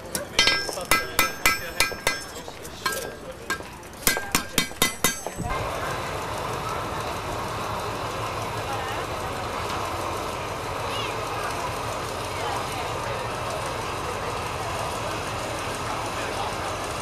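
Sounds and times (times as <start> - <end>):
sharp metallic clinks: 0.0 - 5.5
engine running steadily: 0.0 - 17.0.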